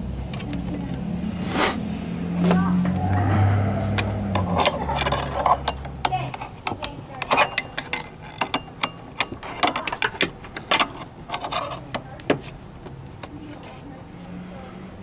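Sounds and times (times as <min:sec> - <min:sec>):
low hum: 0:01.0 - 0:06.5.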